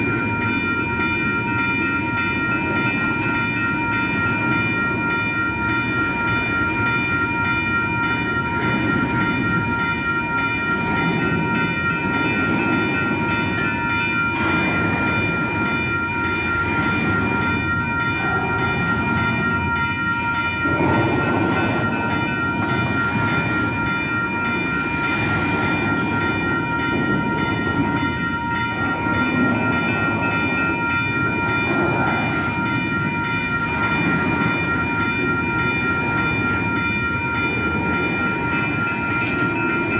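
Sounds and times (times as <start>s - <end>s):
freight train rumbling past: 0.0s - 39.9s
high ringing tones: 0.0s - 39.9s.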